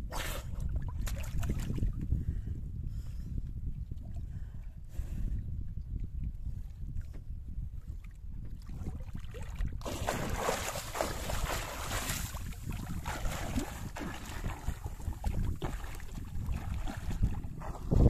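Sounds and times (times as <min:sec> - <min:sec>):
steady low rumble: 0:00.0 - 0:18.0
swimmer splashing in water: 0:09.9 - 0:12.3.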